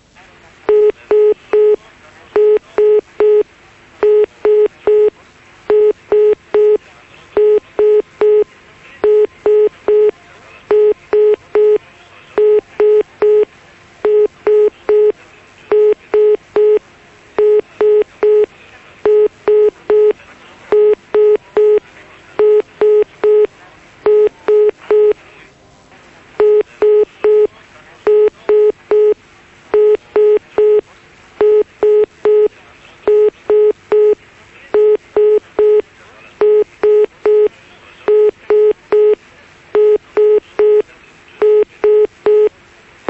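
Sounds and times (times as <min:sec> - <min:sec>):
telephone line beeps: 0:00.7 - 0:01.8, 0:02.4 - 0:06.8, 0:07.4 - 0:10.1, 0:10.7 - 0:11.8, 0:12.4 - 0:16.8, 0:17.4 - 0:21.8, 0:22.4 - 0:23.5, 0:24.1 - 0:25.2, 0:26.4 - 0:27.5, 0:28.1 - 0:29.2, 0:29.8 - 0:30.8, 0:31.4 - 0:32.5, 0:33.1 - 0:34.2, 0:34.8 - 0:35.8, 0:36.4 - 0:37.5, 0:38.1 - 0:39.2, 0:39.8 - 0:42.5.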